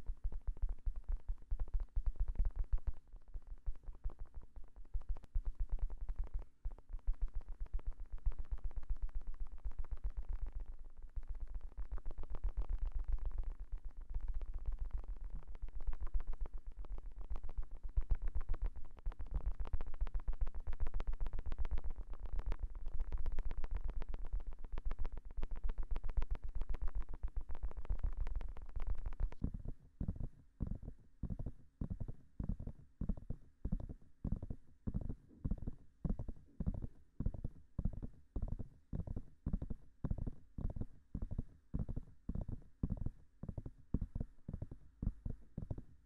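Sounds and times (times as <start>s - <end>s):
fingertip tapping on microphone: 27.8s - 45.9s.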